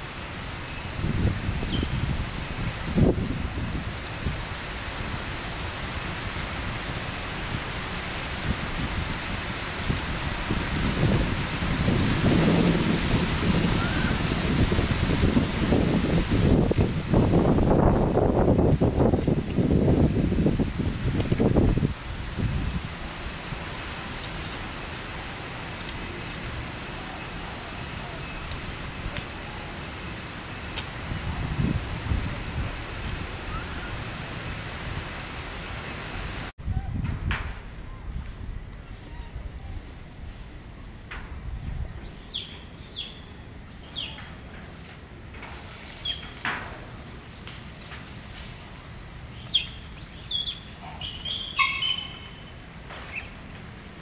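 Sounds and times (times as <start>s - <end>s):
wind buffeting microphone: 0.0s - 25.8s, 30.9s - 35.6s, 36.2s - 43.2s
wind rustling foliage: 0.0s - 54.0s
bird chirps: 42.1s - 44.2s, 46.0s - 46.3s, 49.3s - 52.5s.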